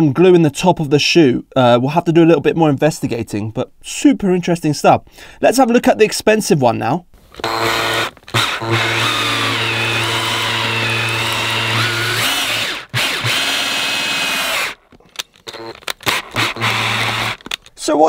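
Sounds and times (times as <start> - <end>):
power drill cutting rubber: 7.2 - 17.6.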